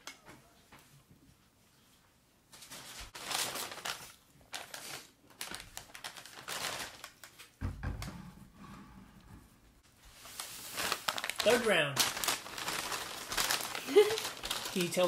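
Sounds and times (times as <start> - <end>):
paper bags rustling: 2.5 - 7.6, 9.9 - 15.0
low thump: 7.6 - 9.5.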